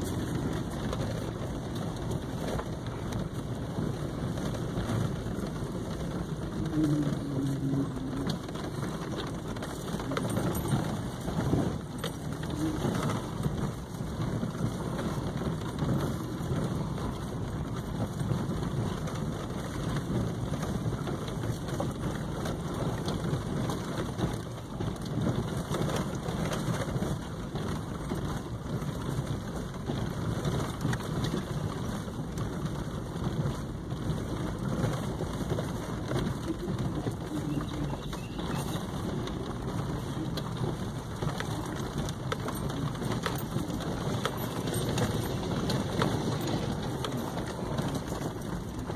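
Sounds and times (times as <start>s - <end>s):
vehicle low rumble: 0.0s - 48.9s
tyres crunching on gravel: 33.6s - 48.9s.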